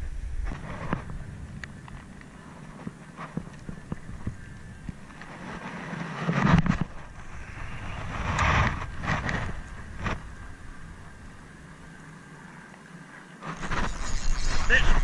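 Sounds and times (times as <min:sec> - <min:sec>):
rustling: 0:13.4 - 0:15.0.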